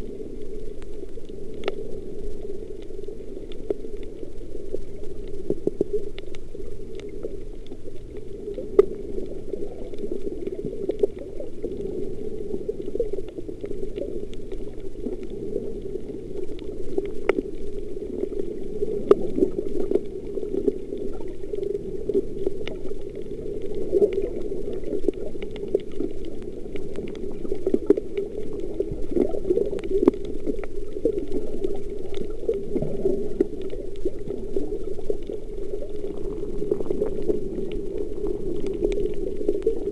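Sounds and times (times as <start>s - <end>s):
underwater rush and bubbling: 0.0s - 39.9s
sharp underwater clicks: 0.5s - 39.9s.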